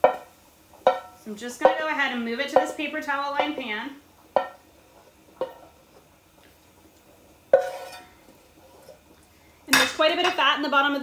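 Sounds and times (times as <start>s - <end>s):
utensil knocking against pan: 0.0s - 1.9s, 4.4s - 4.6s.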